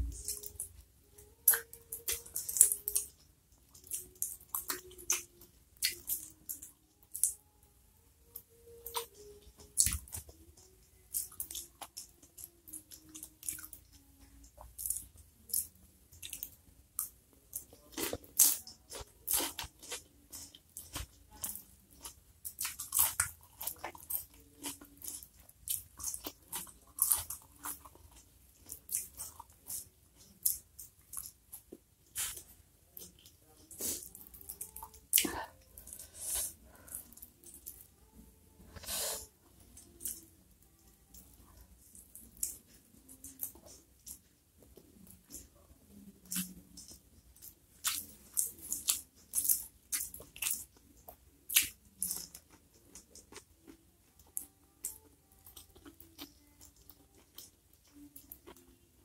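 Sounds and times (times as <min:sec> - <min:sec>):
person chewing food: 0:00.0 - 0:07.4, 0:08.3 - 0:59.0.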